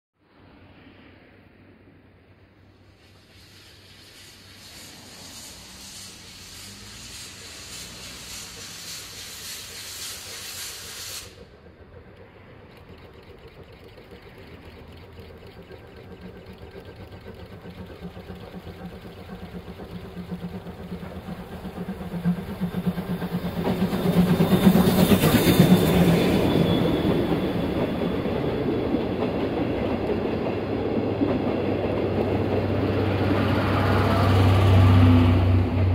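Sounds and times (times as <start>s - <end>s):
steam train passing: 0.3s - 35.9s
hiss of steam: 2.8s - 11.8s, 17.7s - 30.9s
wheels clicking over rail joints: 4.8s - 34.4s.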